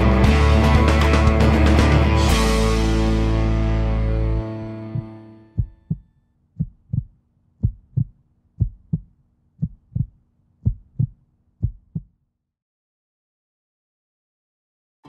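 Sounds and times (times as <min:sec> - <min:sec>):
music: 0:00.0 - 0:05.9
heartbeat double thumps: 0:04.9 - 0:12.1.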